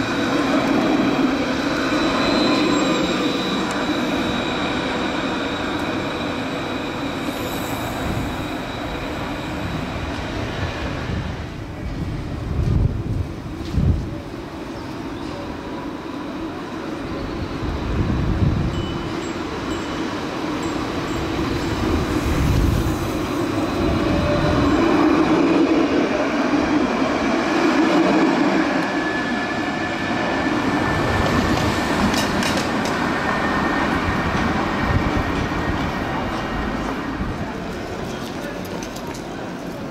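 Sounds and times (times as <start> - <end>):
tram rolling on rails: 0.0 - 39.9
high-pitched wheel squeal: 1.8 - 9.9.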